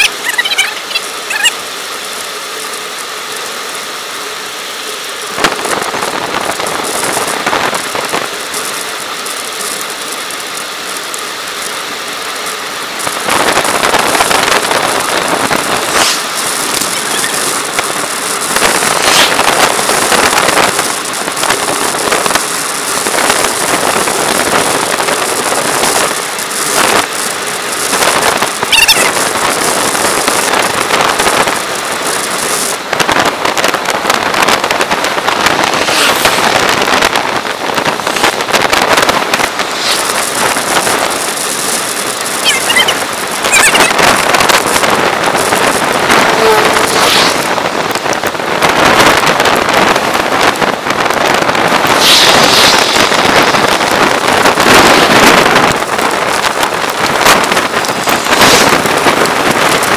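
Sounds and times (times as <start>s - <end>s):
bike tyres hissing on asphalt: 0.0s - 59.9s
wind rushing over microphone: 5.3s - 10.4s, 12.8s - 59.9s
bicycle freewheel ticking: 6.4s - 32.8s.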